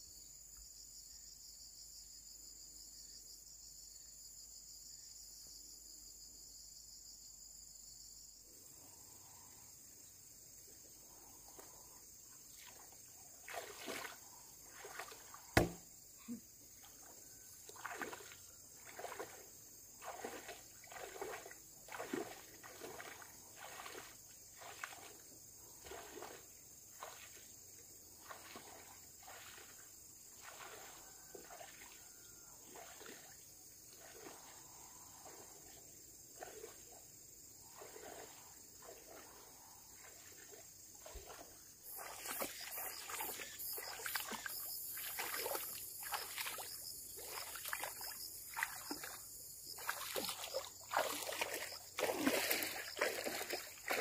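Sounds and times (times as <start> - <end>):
insects chirring: 0.0 - 54.0
sharp knock: 15.6 - 15.9.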